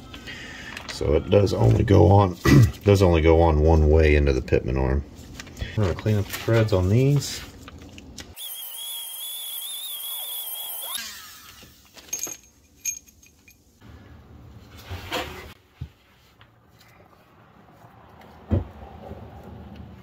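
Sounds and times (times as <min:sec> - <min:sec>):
high wavering tool whine: 0:08.4 - 0:11.7.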